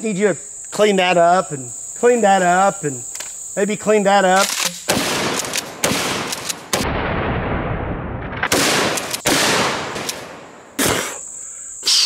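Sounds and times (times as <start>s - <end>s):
gunshots: 4.4s - 7.5s, 8.2s - 11.0s.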